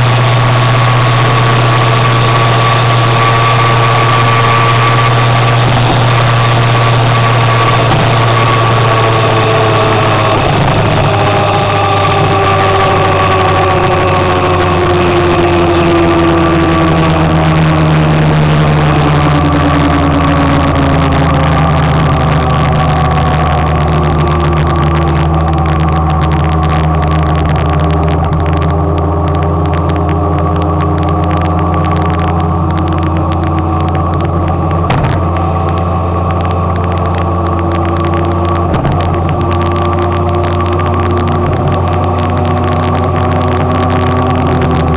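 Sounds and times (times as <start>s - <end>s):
motor scooter engine: 0.0s - 44.9s
road and wind noise: 0.0s - 44.9s.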